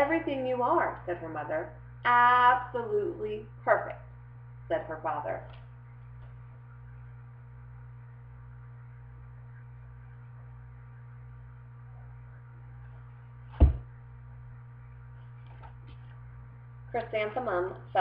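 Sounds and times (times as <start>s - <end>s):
low electrical hum: 0.0s - 18.0s
book thump: 13.5s - 13.9s.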